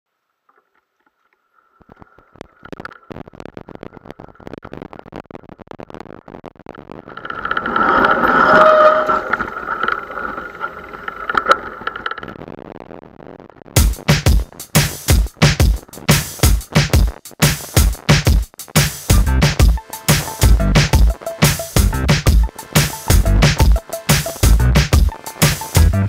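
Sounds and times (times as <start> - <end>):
high whine: 6.9 - 14.1, 19.1 - 26.0.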